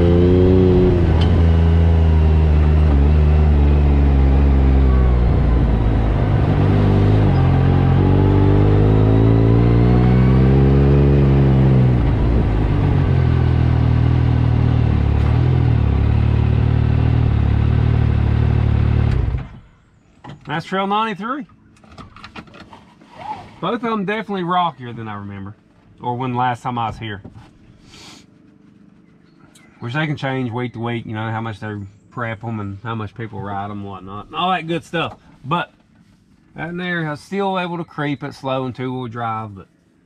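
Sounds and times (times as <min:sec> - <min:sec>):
engine revving: 0:00.0 - 0:19.7.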